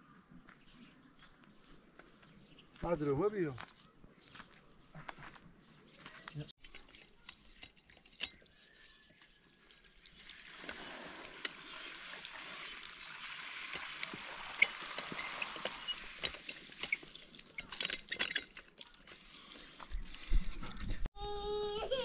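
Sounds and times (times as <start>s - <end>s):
water running from pipe: 6.6s - 21.1s.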